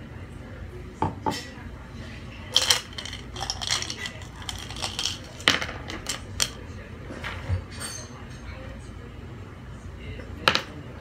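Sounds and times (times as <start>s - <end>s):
glass cup clinking: 2.6s - 6.6s.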